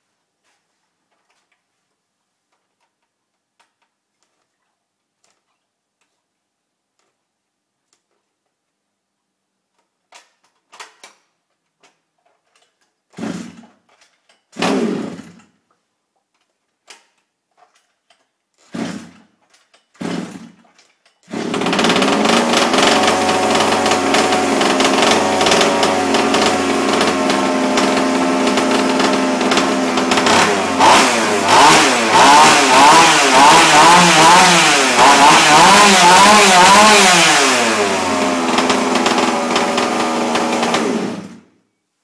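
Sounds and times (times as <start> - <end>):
recoil starter pulls: 11.8 - 15.6, 16.4 - 41.5
two-stroke engine running: 21.3 - 41.4.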